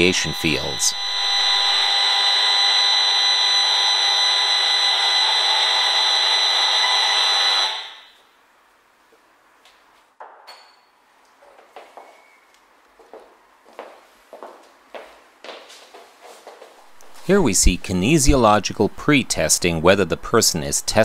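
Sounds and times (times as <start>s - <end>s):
electronic buzzing tone: 0.0s - 8.2s.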